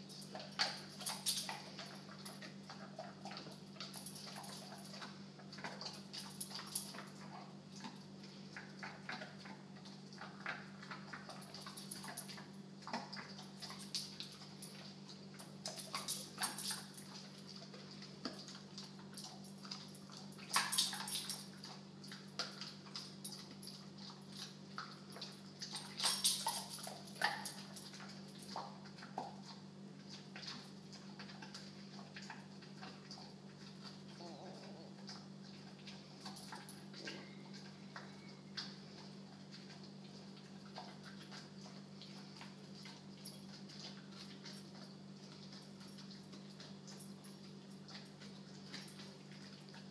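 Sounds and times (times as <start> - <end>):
dog chewing a bully stick: 0.0 - 49.9.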